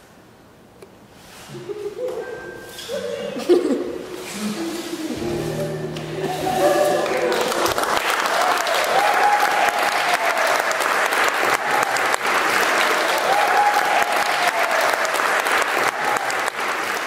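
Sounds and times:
audience applauding: 5.8s - 17.0s.

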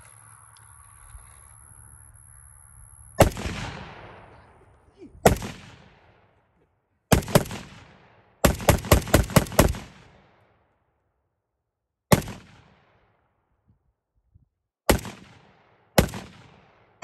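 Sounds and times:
gunshots: 3.2s - 6.4s, 7.1s - 10.4s, 12.1s - 12.9s, 14.9s - 17.0s.

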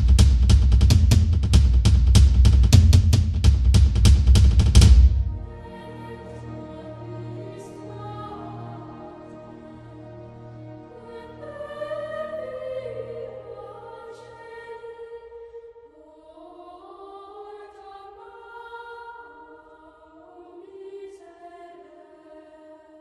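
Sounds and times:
choir singing held notes: 5.2s - 22.3s.

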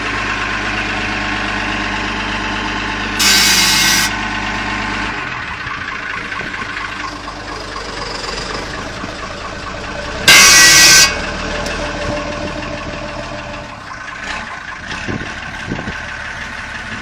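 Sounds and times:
diesel truck engine idling: 0.0s - 17.0s
air brake valve hiss: 3.2s - 4.1s.

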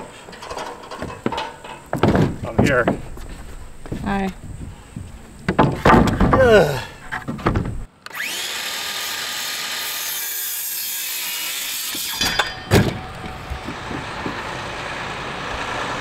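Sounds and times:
circular saw cutting wood: 8.1s - 16.0s.

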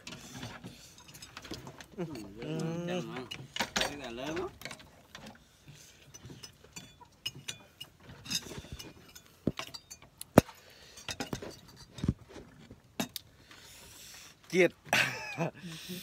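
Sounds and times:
light clinks: 0.1s - 12.0s.

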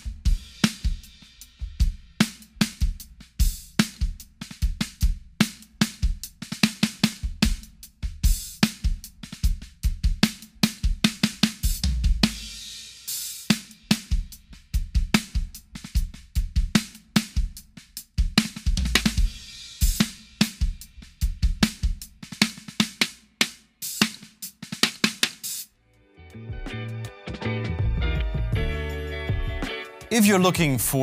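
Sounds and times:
snare drum with shaker rattle: 0.0s - 1.6s, 8.3s - 25.7s
kick drum and hi-hat: 0.0s - 25.6s, 27.8s - 31.0s.

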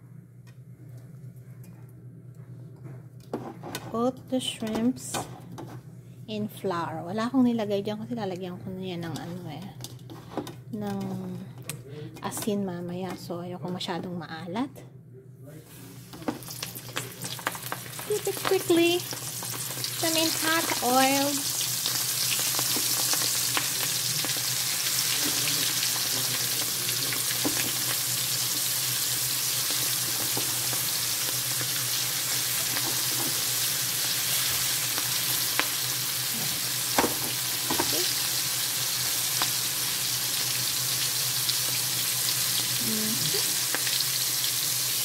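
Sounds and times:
shrimp deep-frying in oil: 16.2s - 45.0s.

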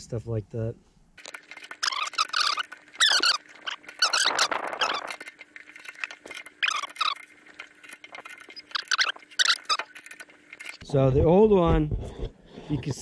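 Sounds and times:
metal squeaking: 1.2s - 10.8s.

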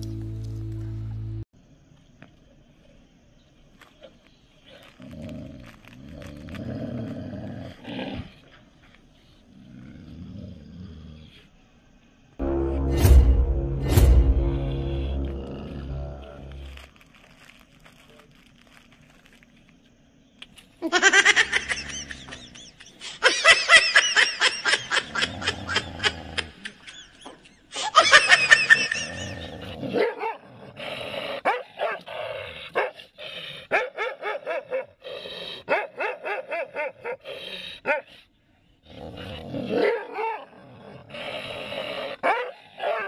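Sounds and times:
dogs growling: 4.9s - 8.7s, 9.4s - 11.5s, 28.8s - 36.0s, 38.8s - 43.0s
dogs barking: 29.9s - 30.4s, 31.4s - 32.1s, 33.7s - 35.0s, 35.6s - 37.2s, 42.2s - 43.0s.

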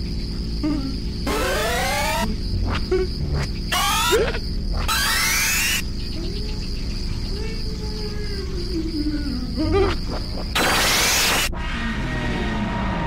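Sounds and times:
crickets chirping: 0.0s - 13.0s
rising swooping tones: 1.3s - 2.3s, 4.8s - 5.9s.

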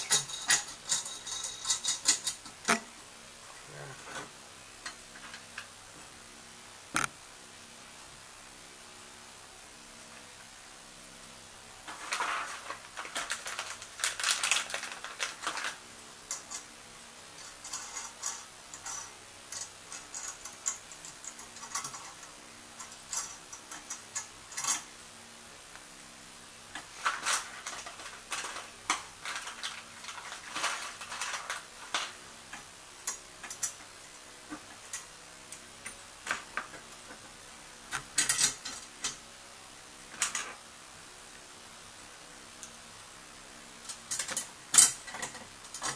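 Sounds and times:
small metallic clicks and clinks: 0.0s - 2.5s.

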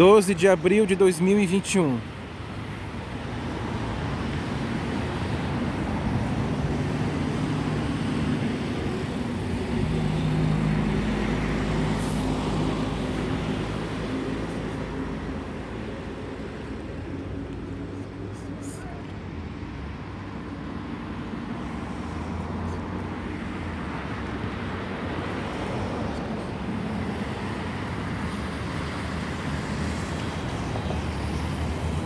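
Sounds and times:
road traffic engines humming: 0.0s - 32.0s.

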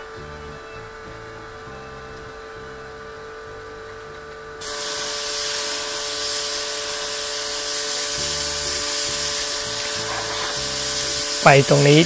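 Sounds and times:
water jet hissing: 4.6s - 12.0s.

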